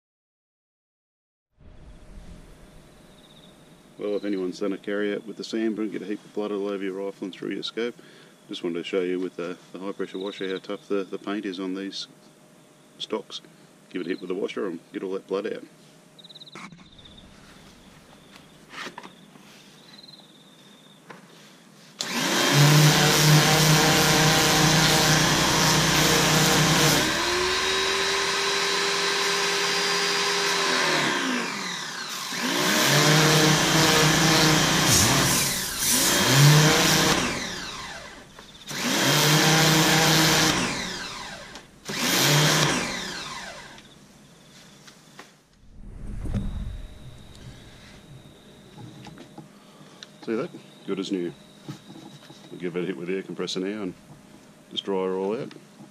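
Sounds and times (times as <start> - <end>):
electric pressure washer running: 22.0 - 43.9.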